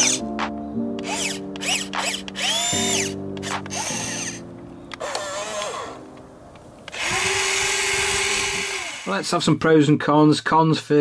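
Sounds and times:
electric servos whining: 0:00.0 - 0:00.2, 0:01.0 - 0:06.1, 0:06.9 - 0:09.2
steady motor hum: 0:01.0 - 0:03.1, 0:06.9 - 0:09.1.

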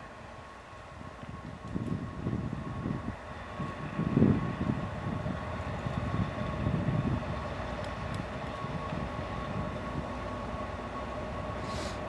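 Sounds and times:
constant high whine: 0:00.0 - 0:12.0
diesel locomotive engine rumble: 0:00.0 - 0:12.0.

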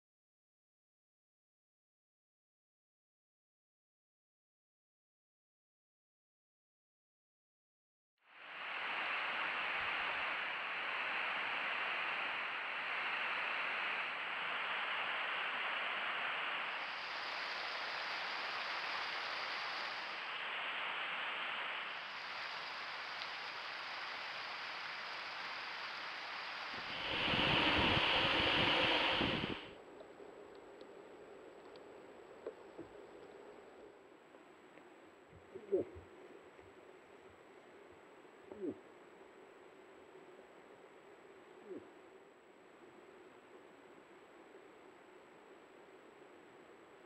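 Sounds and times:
microphone hiss: 0:08.2 - 0:47.0
loud rush of noise: 0:08.6 - 0:29.7
thin high whine: 0:09.8 - 0:29.8.

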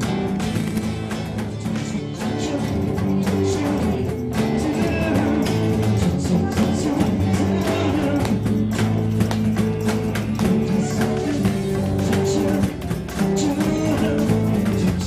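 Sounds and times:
live band playing: 0:00.0 - 0:15.0.

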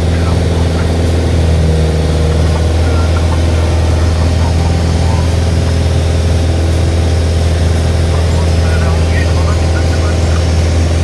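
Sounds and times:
aircraft engine and propeller drone: 0:00.0 - 0:11.0.

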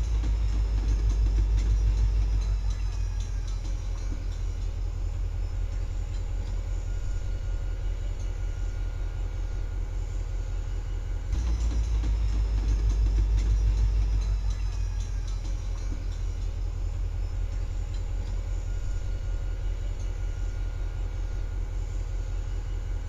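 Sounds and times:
train wheels rumbling on track: 0:00.0 - 0:05.1, 0:11.3 - 0:17.2.

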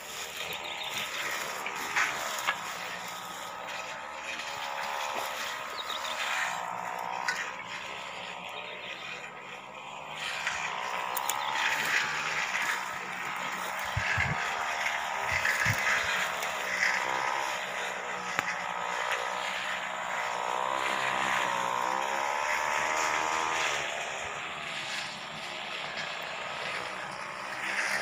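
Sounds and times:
brush cutter engine running: 0:00.0 - 0:28.0.

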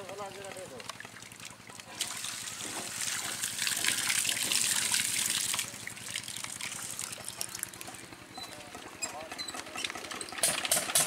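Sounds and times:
diesel engine running: 0:01.0 - 0:11.0
water gushing into tank: 0:01.3 - 0:07.9.

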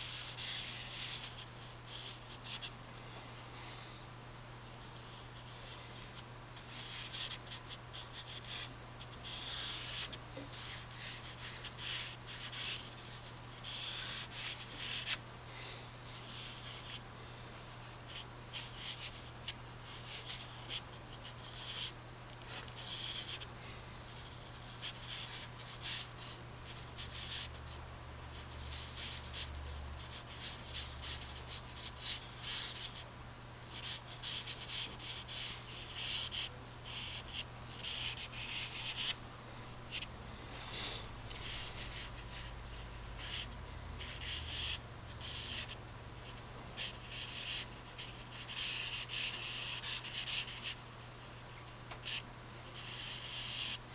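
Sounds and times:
drawing stick scratching paper: 0:00.0 - 0:02.7, 0:05.0 - 0:15.2, 0:18.1 - 0:23.4, 0:24.1 - 0:26.3, 0:33.7 - 0:39.2, 0:40.7 - 0:50.8, 0:52.8 - 0:53.8.

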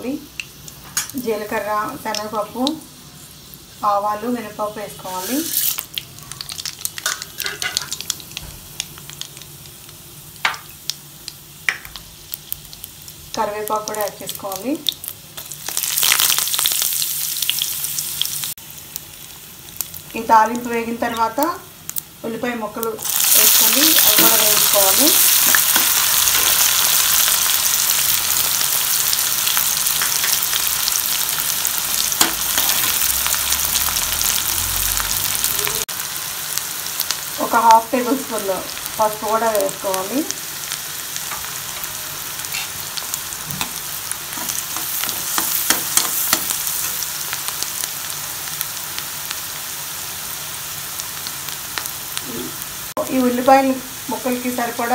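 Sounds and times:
spices sizzling in hot oil: 0:00.0 - 0:54.9
sharp pops of frying: 0:05.6 - 0:19.1, 0:22.8 - 0:34.5, 0:38.4 - 0:49.4.

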